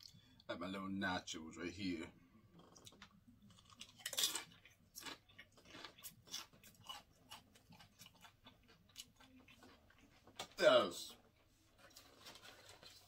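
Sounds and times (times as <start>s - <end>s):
tortilla chip crunching: 2.6s - 10.5s, 11.8s - 13.0s.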